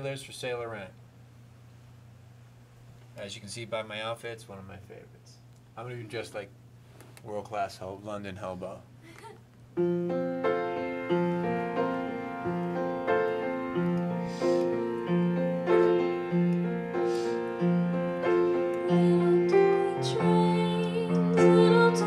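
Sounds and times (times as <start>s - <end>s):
upright piano accompaniment: 9.8s - 22.0s.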